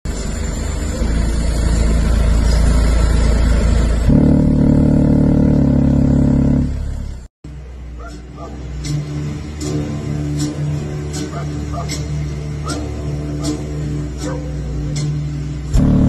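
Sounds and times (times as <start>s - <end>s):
deep bass from car subwoofers: 1.0s - 7.3s, 13.0s - 16.0s.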